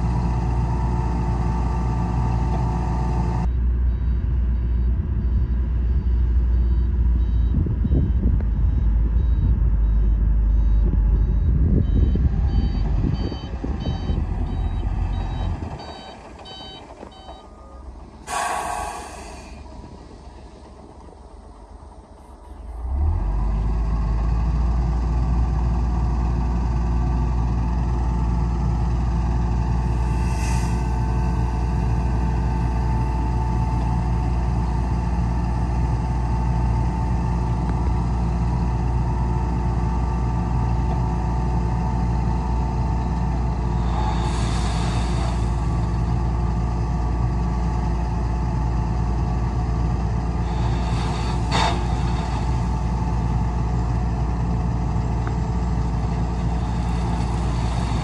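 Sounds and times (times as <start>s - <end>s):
diesel engine droning: 0.0s - 58.0s
short hissing noises: 18.3s - 19.6s.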